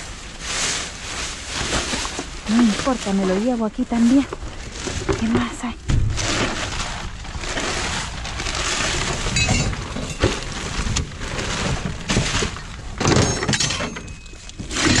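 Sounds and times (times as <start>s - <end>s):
trash being rummaged: 0.0s - 15.0s
broken glass clinking: 9.3s - 10.3s, 13.0s - 15.0s.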